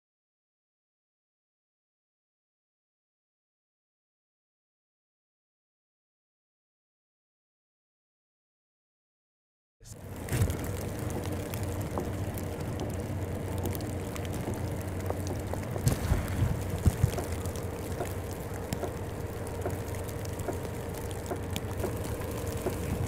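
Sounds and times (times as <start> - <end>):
constant low hum: 9.8 - 23.0
snowstorm rushing noise: 10.0 - 20.2
scattered knocks: 13.6 - 23.0.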